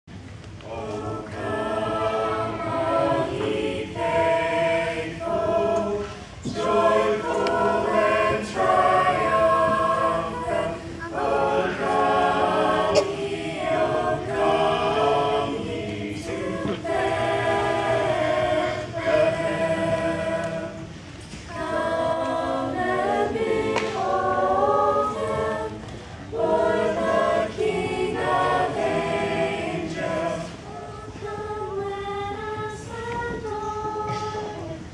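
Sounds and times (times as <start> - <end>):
mixed choir singing: 0.6 - 34.9.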